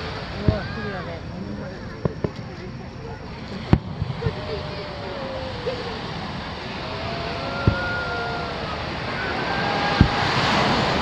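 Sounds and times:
firework shells booming: 3.6s - 4.6s, 7.3s - 8.2s, 9.8s - 11.0s.

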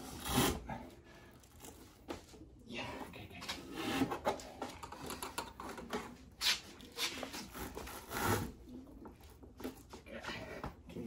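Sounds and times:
rope rubbing and rasping: 6.4s - 8.8s.

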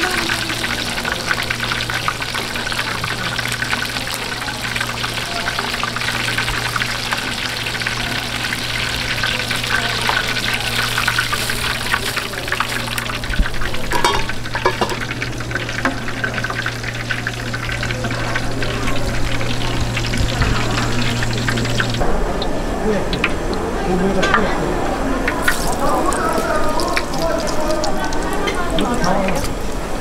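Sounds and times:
food sizzling in hot oil: 0.0s - 22.1s, 25.3s - 30.0s
steady low hum: 5.8s - 26.8s.

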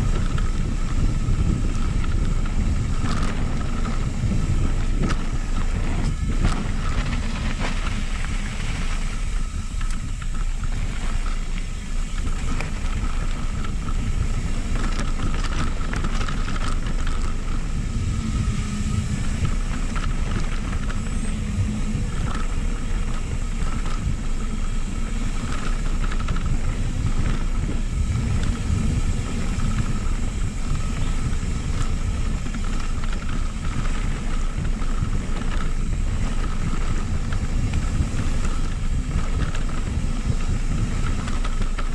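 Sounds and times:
bike knocks and rattles: 0.0s - 41.9s
bike tyre noise: 0.0s - 41.9s
wind rush on microphone: 0.0s - 41.9s.

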